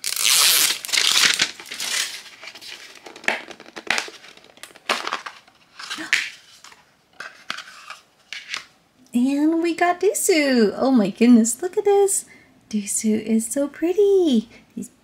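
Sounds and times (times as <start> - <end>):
seal peeling off plastic case: 0.0 - 6.1
plastic case creaking and snapping: 0.9 - 6.0.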